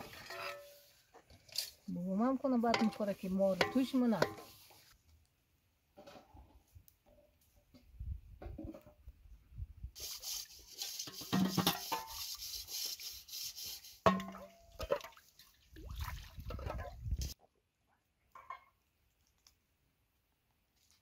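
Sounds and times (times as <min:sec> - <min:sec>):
metal cookware clinking and knocking: 0:02.7 - 0:03.0.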